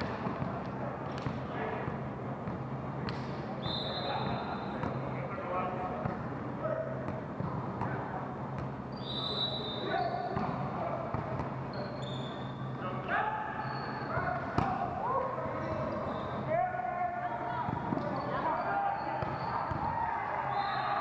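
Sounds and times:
shoes squeaking on gym floor: 11.7s - 12.7s, 15.5s - 16.5s, 17.8s - 21.0s.

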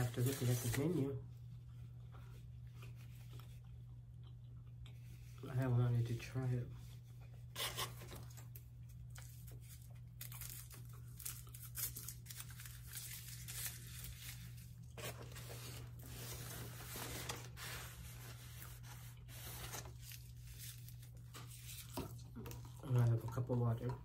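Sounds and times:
paper wrapper tearing and crinkling: 0.0s - 1.1s, 7.6s - 21.9s.

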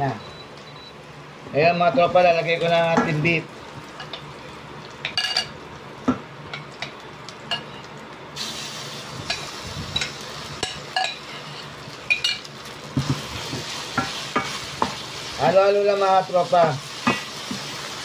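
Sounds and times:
meat sizzling in a pan: 6.5s - 18.0s.

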